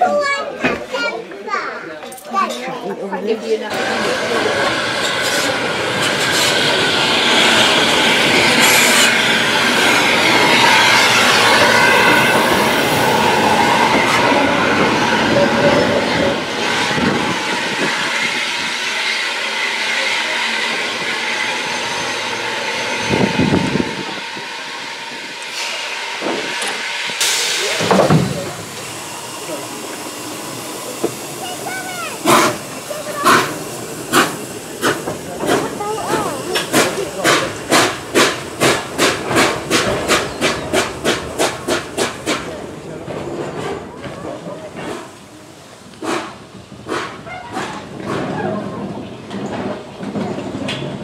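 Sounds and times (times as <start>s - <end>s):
train wheels clattering over rail joints: 30.9s - 51.0s.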